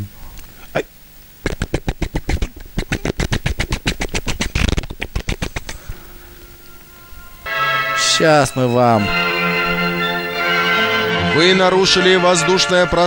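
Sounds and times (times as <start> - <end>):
faint steady hum: 0.0 - 12.4
rapid sharp clicks: 1.4 - 5.8.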